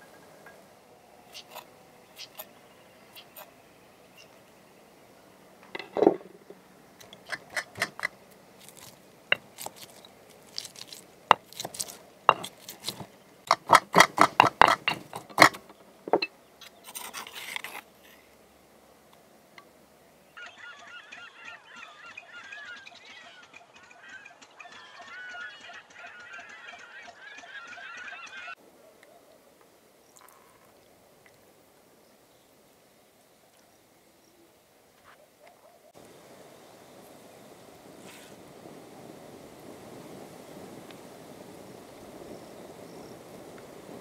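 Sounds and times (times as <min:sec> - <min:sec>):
birds calling: 0:00.0 - 0:18.4, 0:19.3 - 0:30.7
pestle grinding: 0:07.1 - 0:16.3
pestle pounding in stone mortar: 0:11.3 - 0:16.3.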